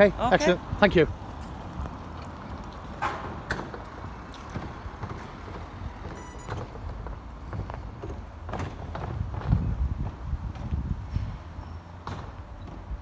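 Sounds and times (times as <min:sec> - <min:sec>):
footsteps on pavement: 0:01.2 - 0:11.0.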